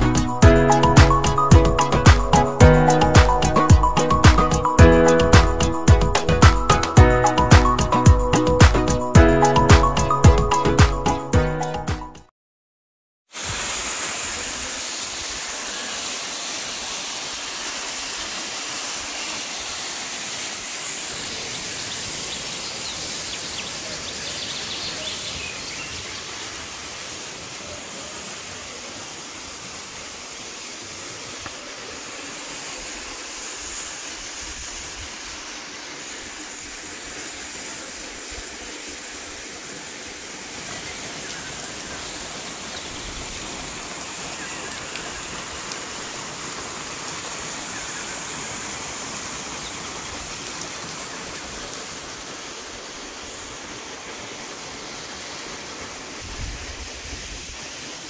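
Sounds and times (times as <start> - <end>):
waterfall pouring over rock: 13.3 - 58.0.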